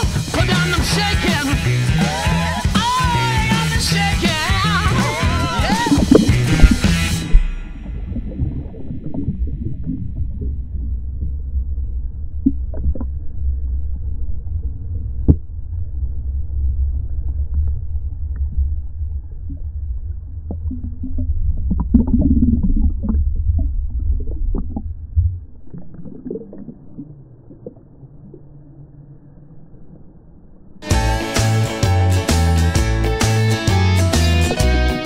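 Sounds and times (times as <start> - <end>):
underwater river rumble: 4.3 - 30.8
water splashing: 4.4 - 13.3
water gurgling: 4.5 - 30.3.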